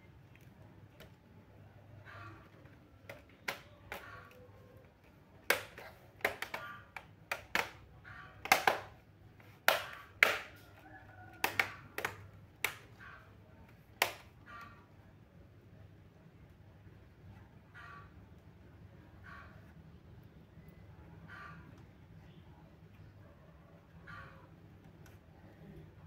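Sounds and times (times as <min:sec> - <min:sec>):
hard objects clicking and tapping: 0:05.4 - 0:10.6, 0:11.4 - 0:12.8.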